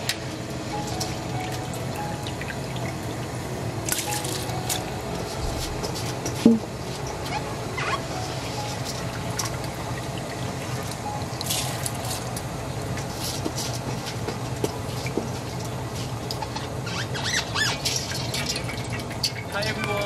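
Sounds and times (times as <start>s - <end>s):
liquid bubbling in pot: 5.0s - 20.0s.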